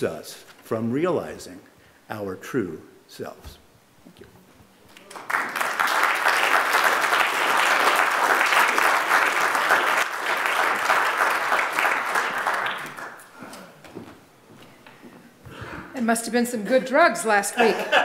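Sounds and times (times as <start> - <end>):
congregation applauding: 4.9 - 13.3.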